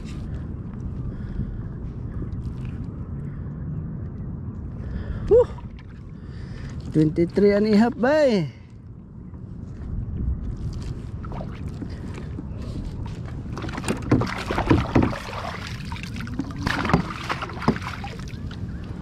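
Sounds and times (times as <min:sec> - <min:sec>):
water sloshing against kayak hull: 0:10.7 - 0:19.0
knocks and splashes: 0:13.4 - 0:18.6.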